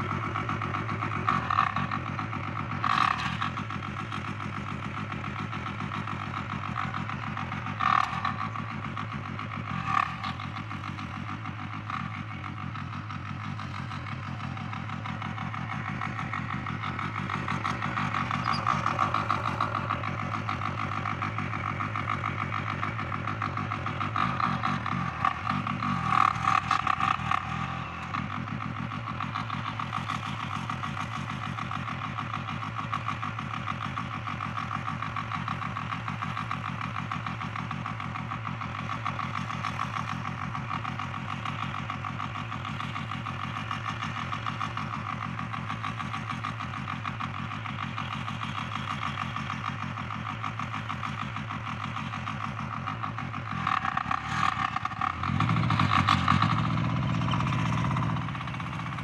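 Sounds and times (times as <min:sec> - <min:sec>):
diesel power weeder running: 0:00.0 - 0:59.0.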